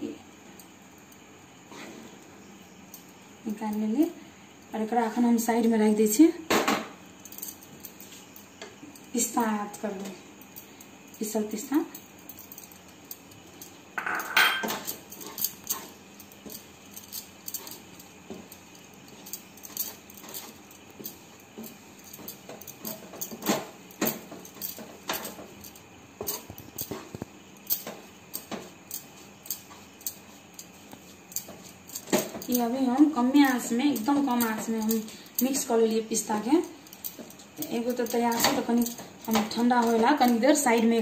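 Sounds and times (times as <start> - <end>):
utensil clatter: 12.5 - 41.0.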